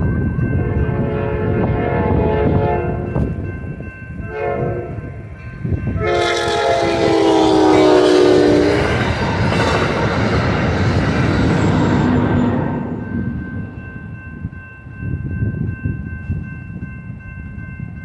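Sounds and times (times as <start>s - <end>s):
train wheels rumbling on rails: 0.0s - 18.0s
train horn blasts: 0.5s - 3.3s, 4.2s - 5.2s, 5.9s - 13.0s.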